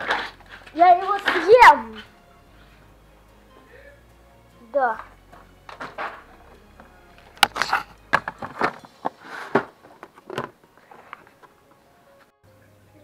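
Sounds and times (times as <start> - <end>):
rummaging through plastic boxes: 0.0 - 2.1, 7.4 - 11.6.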